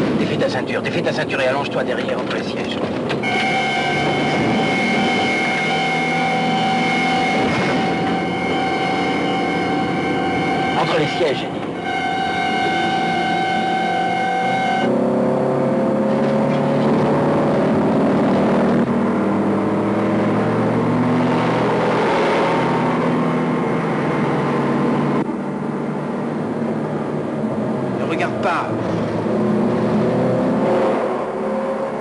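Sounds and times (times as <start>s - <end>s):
car engines revving hard: 0.0s - 32.0s
held horn: 2.4s - 15.0s.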